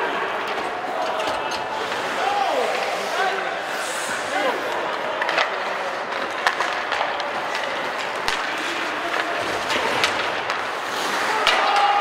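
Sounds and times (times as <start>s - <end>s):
hockey sticks and puck clacking: 0.0s - 12.0s
skates scraping ice: 0.0s - 12.0s.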